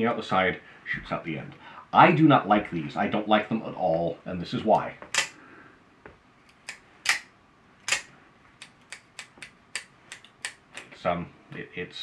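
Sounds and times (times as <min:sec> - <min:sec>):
switchblade mechanism clicking: 0:04.8 - 0:05.4, 0:06.5 - 0:07.3, 0:07.9 - 0:10.9.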